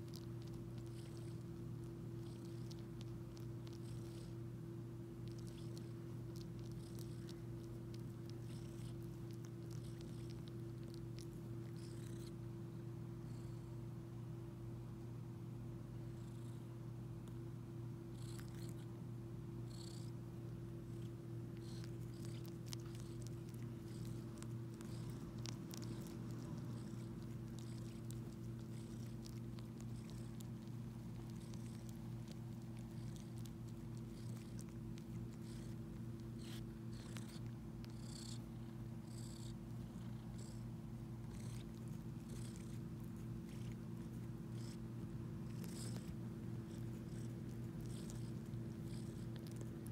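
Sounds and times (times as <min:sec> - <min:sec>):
faint suckling clicks and smacks: 0:00.0 - 0:04.4, 0:05.2 - 0:12.4, 0:20.8 - 0:49.9
cat purring: 0:00.0 - 0:12.6, 0:16.0 - 0:17.4, 0:18.0 - 0:49.9
soft sucking sounds: 0:21.0 - 0:38.8.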